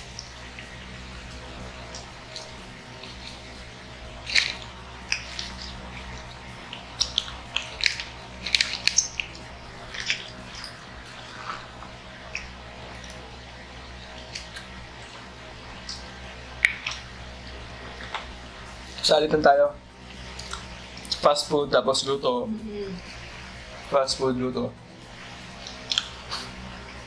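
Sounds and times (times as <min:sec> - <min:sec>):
people chewing food: 0:00.0 - 0:19.2, 0:20.0 - 0:21.4, 0:25.0 - 0:27.0
wet mouth smacks: 0:25.6 - 0:26.6.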